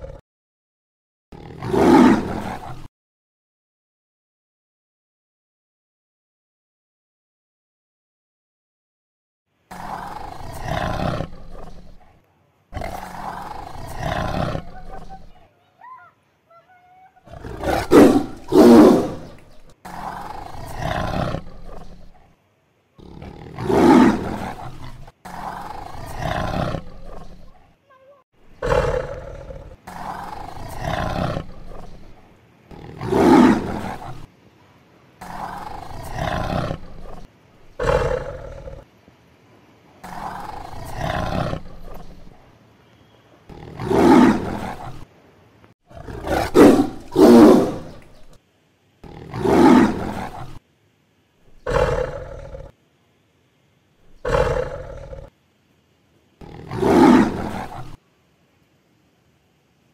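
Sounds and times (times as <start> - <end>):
tiger roaring: 1.4 - 2.9, 9.7 - 15.4, 17.2 - 22.3, 23.0 - 27.7, 28.5 - 34.3, 35.2 - 38.9, 40.0 - 42.4, 43.5 - 45.1, 45.9 - 48.4, 49.0 - 50.6, 51.5 - 52.8, 54.1 - 55.3, 56.4 - 58.0.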